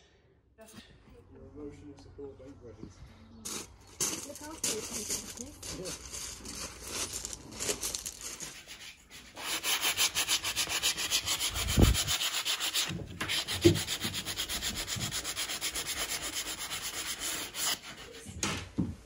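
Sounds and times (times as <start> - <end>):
sandpaper sanding wood: 4.6 - 18.3.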